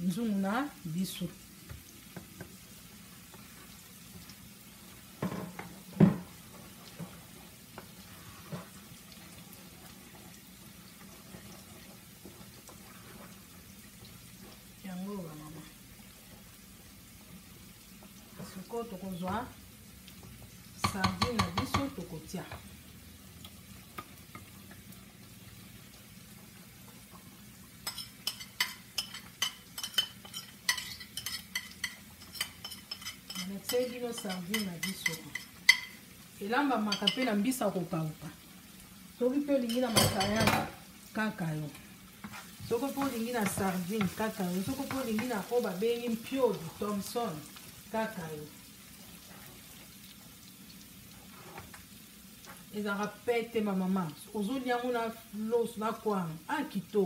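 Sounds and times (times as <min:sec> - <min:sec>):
faint frying sizzle: 0:00.0 - 0:57.0
sauce simmering in pot: 0:00.3 - 0:57.0
spoon stirring in pot: 0:20.3 - 0:22.7, 0:27.8 - 0:36.2, 0:36.9 - 0:37.3, 0:41.8 - 0:47.8, 0:49.0 - 0:52.6
cookware clanking: 0:27.9 - 0:36.0, 0:39.6 - 0:40.8.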